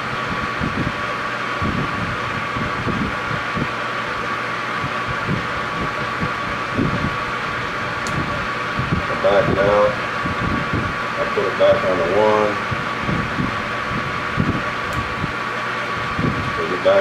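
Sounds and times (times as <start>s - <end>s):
metal lathe humming and hissing: 0.0s - 17.0s.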